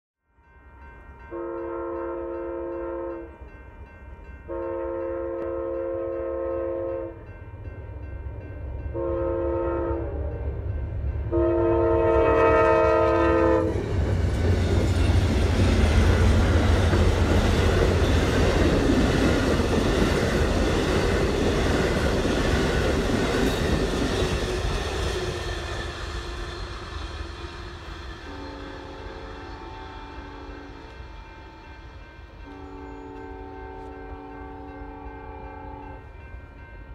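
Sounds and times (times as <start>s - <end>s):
train horn: 0.6s - 3.5s, 4.4s - 7.3s, 8.9s - 10.6s, 11.3s - 14.0s, 22.6s - 36.9s
train wheels rumbling on rails: 10.4s - 36.9s.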